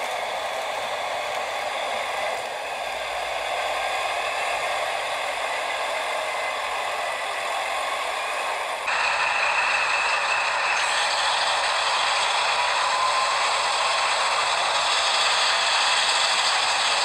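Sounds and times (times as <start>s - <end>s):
model train motor whirring: 0.0s - 17.0s
wheels clattering on track: 3.4s - 17.0s.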